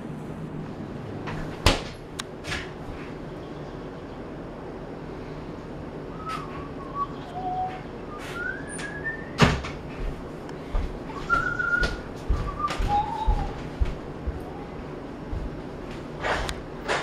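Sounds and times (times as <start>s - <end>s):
short whistled notes: 6.2s - 9.4s.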